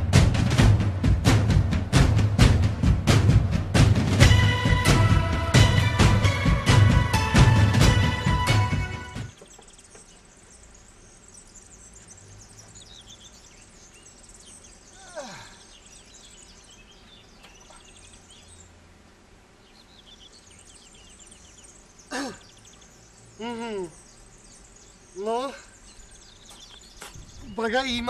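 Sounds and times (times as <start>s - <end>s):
theme music: 0.0s - 9.4s
birds chirping: 0.0s - 28.0s.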